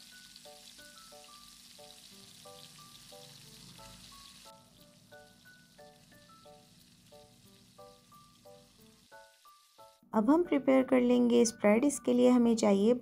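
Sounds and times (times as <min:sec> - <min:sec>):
food sizzling in hot oil: 0:00.0 - 0:10.0
soft background music: 0:00.0 - 0:13.0.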